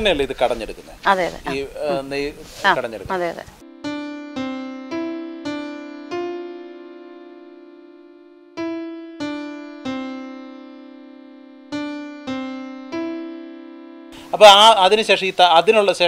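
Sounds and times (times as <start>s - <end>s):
slow piano music: 3.2s - 16.0s.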